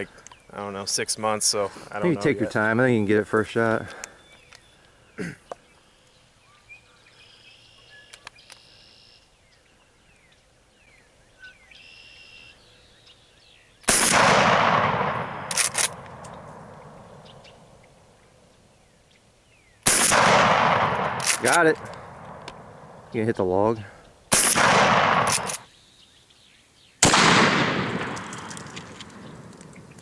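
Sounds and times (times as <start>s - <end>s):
shotgun shot echoing: 13.9s - 17.4s, 19.9s - 23.0s, 24.3s - 25.7s, 27.0s - 30.0s.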